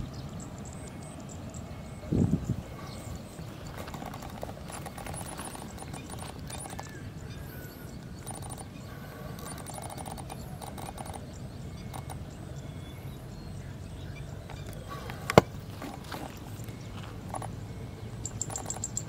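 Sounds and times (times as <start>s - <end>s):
faint high chirps: 0.0s - 19.0s
light clicks and rustles: 3.6s - 7.0s.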